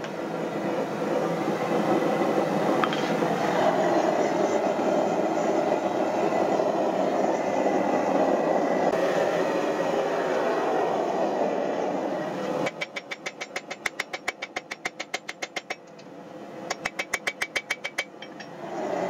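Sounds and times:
steady rushing noise: 0:00.0 - 0:12.9.

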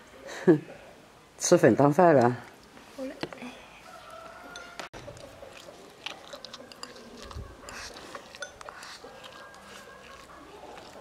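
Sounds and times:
soft chewing: 0:02.5 - 0:11.0.

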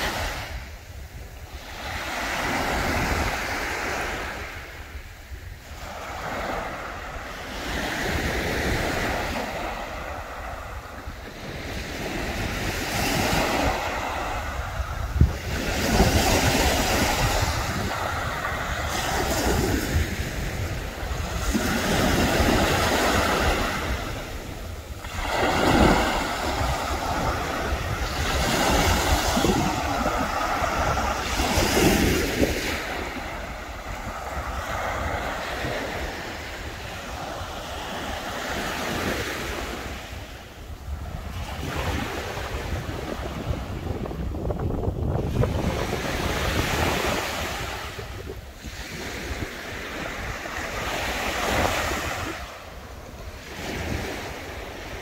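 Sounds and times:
wind rumbling on microphone: 0:00.0 - 0:55.0
surf breaking on shore: 0:05.9 - 0:40.2.

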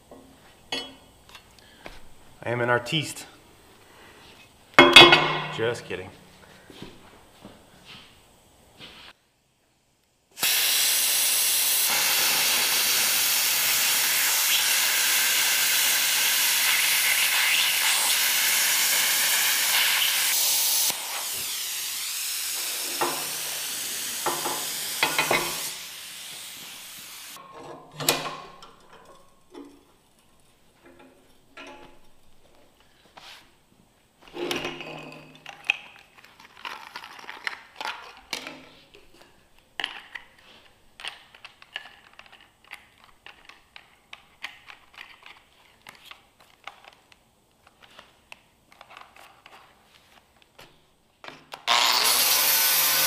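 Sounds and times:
metal clank: 0:00.7 - 0:01.1, 0:04.8 - 0:05.9
plasma cutter hissing: 0:10.4 - 0:27.4.

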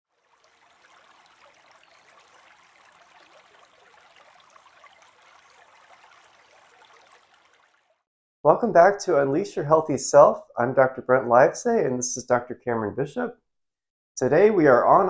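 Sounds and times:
faint running water: 0:00.1 - 0:08.0.

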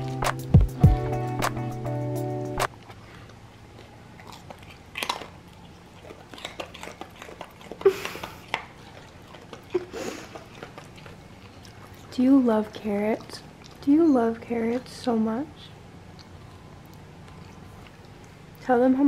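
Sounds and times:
dog chewing crunchily: 0:02.7 - 0:15.3, 0:16.0 - 0:18.6.

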